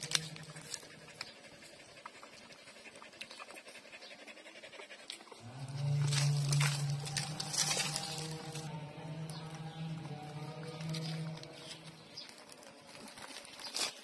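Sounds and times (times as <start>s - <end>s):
puppies suckling clicks: 0.1s - 3.8s
panting breaths: 0.4s - 5.4s
background music hum: 5.4s - 13.6s.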